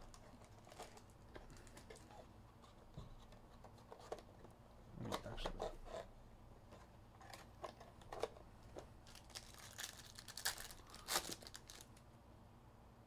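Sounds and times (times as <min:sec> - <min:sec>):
foil wrapper crinkling and tearing: 0:09.0 - 0:12.0.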